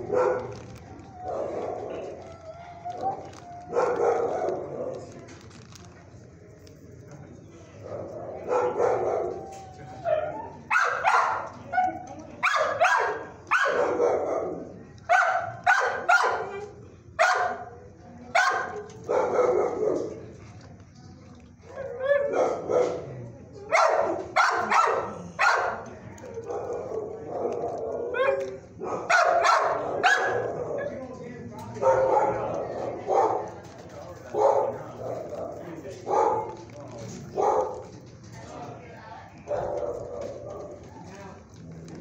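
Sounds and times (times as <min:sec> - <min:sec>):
dogs barking: 0:00.0 - 0:05.2, 0:07.8 - 0:16.6, 0:17.2 - 0:17.7, 0:18.4 - 0:20.2, 0:21.8 - 0:31.0, 0:31.8 - 0:38.0, 0:39.4 - 0:40.9.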